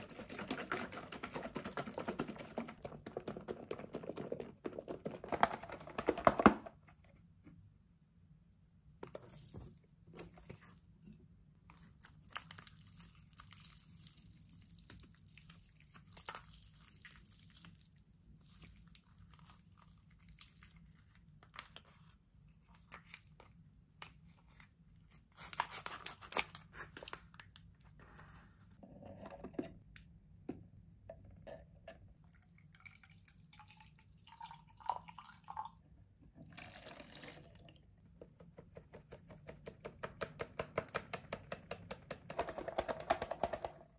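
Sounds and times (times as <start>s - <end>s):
water poured into plastic flask: 32.2s - 35.8s, 36.4s - 38.1s.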